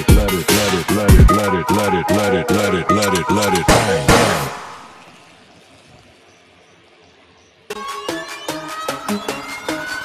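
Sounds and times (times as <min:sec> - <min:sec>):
electronic dance music: 0:00.0 - 0:05.0.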